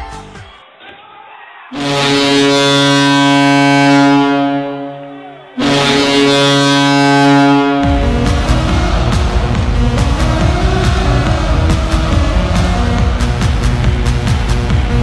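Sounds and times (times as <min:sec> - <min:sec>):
hockey goal horn blasts: 0:01.8 - 0:09.0.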